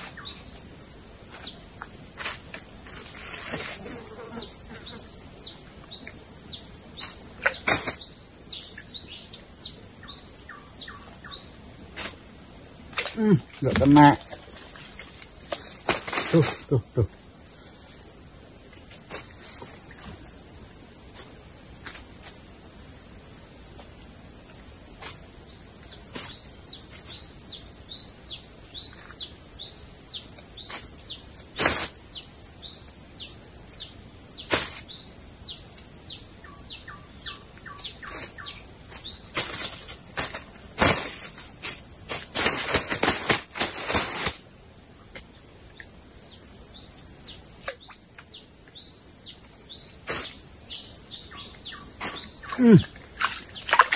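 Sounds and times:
high-pitched insect drone: 0:00.0 - 0:53.9
bird chirping: 0:50.7 - 0:52.6.

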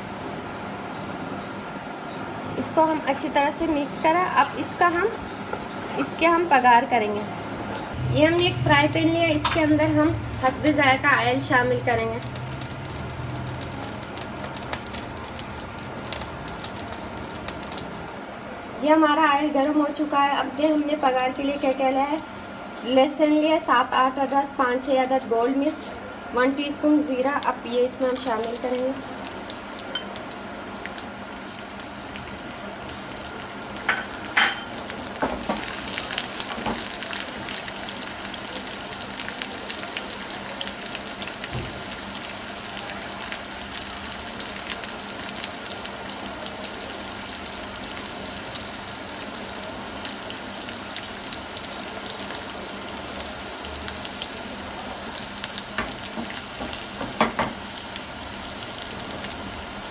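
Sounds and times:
hot oil sizzling in a frying pan: 0:07.9 - 0:59.9.

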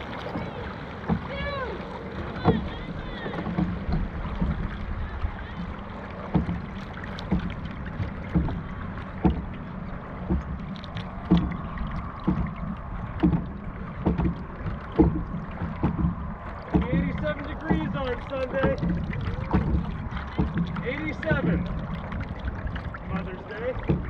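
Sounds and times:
paddles striking water: 0:00.0 - 0:24.0.

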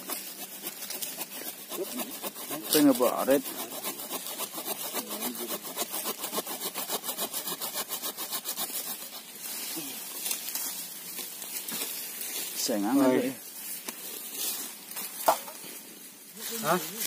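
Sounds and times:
rapid rasping strokes: 0:00.0 - 0:15.2.

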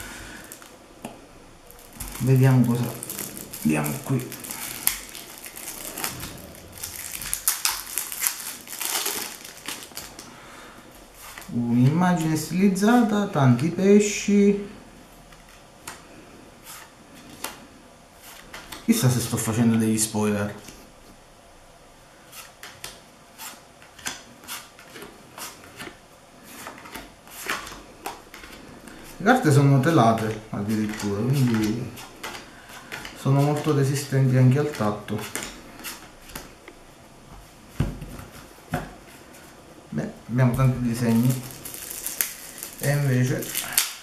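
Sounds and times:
plastic wrapping crinkling: 0:01.7 - 0:10.3, 0:40.6 - 0:44.0.

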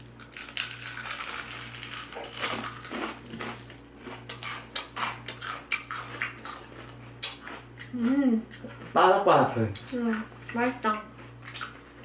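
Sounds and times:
fried chicken crunching: 0:00.0 - 0:07.9.

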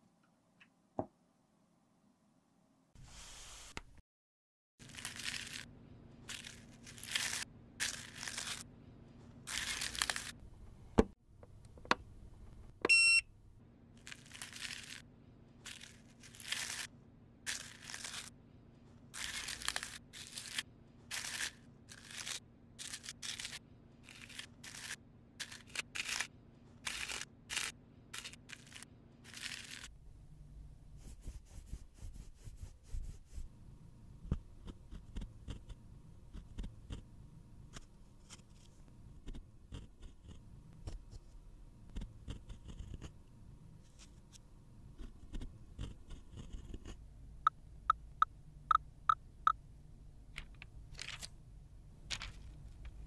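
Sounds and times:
faint steady hum: 0:04.8 - 0:53.0
short beep: 0:12.9 - 0:13.3
blade scraping eyeshadow powder: 0:19.2 - 0:29.9, 0:45.0 - 0:47.0.

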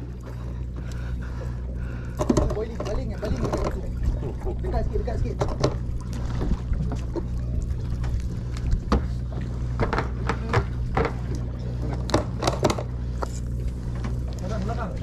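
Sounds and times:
boat engine hum: 0:00.0 - 0:15.0
clicks and knocks unhooking fish: 0:02.0 - 0:04.4, 0:09.7 - 0:14.5.

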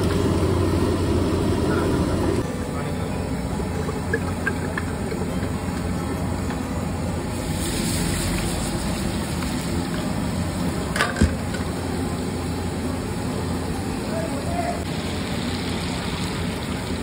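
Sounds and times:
gas burner roar: 0:00.0 - 0:17.0
oil sizzling on hot metal: 0:03.8 - 0:17.0.

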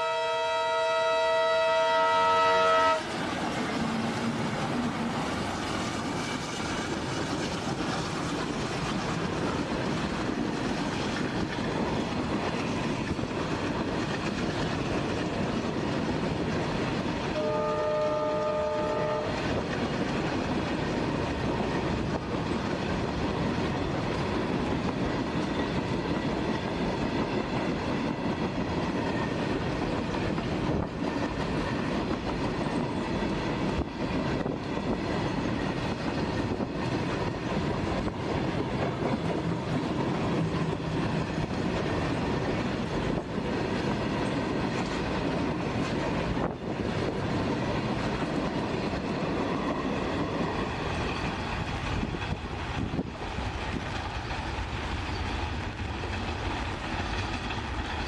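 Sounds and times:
locomotive horn: 0:00.0 - 0:03.2, 0:17.3 - 0:19.5
faint train horn: 0:00.0 - 0:05.4, 0:17.3 - 0:19.6
freight train rumble and wheel clatter: 0:00.0 - 0:58.0.

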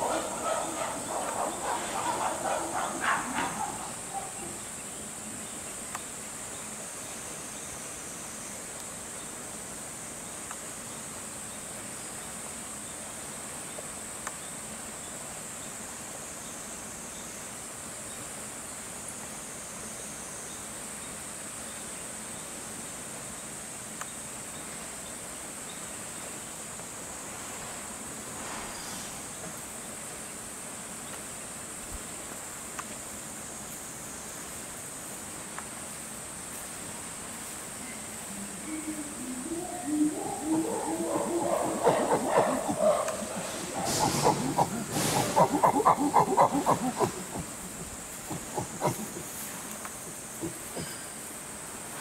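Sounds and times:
animal calls: 0:00.0 - 0:04.6, 0:38.3 - 0:51.0
insect chorus drone: 0:00.0 - 0:52.0.

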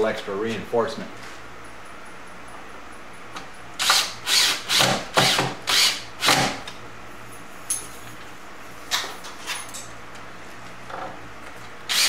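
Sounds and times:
cordless drill driving screw into wood: 0:03.8 - 0:06.6.

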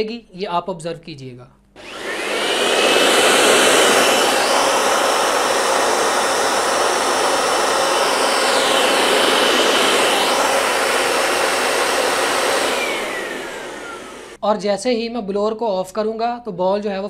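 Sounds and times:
electric air blower whining: 0:01.8 - 0:14.4.

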